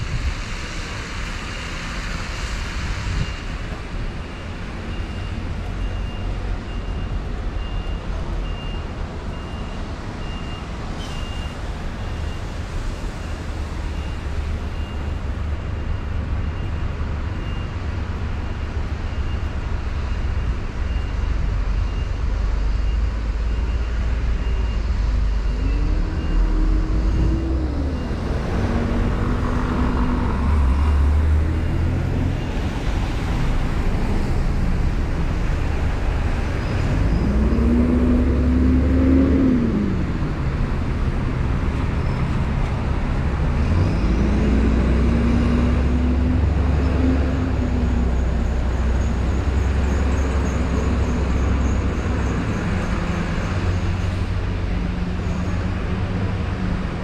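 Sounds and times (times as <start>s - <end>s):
bus engines rumbling: 0.0s - 57.0s
faint high beeps: 4.4s - 12.5s, 18.4s - 30.7s
engine revving: 24.9s - 56.6s.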